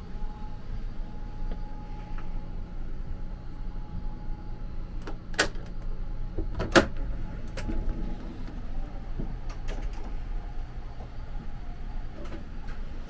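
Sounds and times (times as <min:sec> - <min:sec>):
steady low hum: 0:00.0 - 0:13.0
sliding door clacking open: 0:06.4 - 0:10.3.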